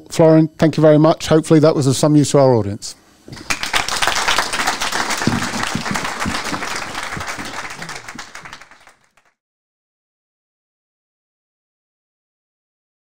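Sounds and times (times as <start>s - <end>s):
audience applauding: 3.4s - 9.4s.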